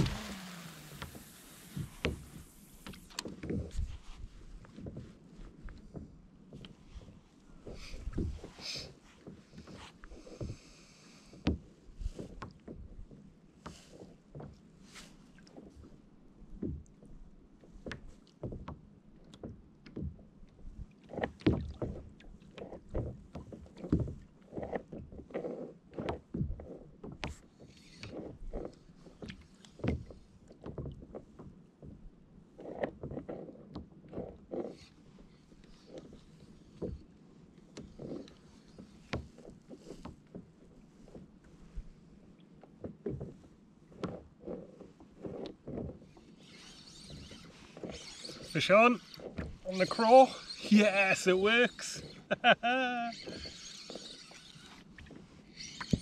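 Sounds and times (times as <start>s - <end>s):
water slapping plastic kayak hull: 0.0s - 5.1s.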